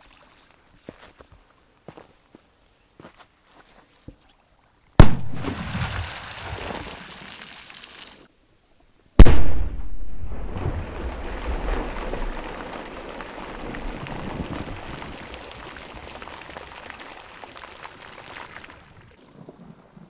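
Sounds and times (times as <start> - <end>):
firecracker bang: 5.0 - 6.0
water and mud spattering down: 5.0 - 8.2, 10.6 - 18.8.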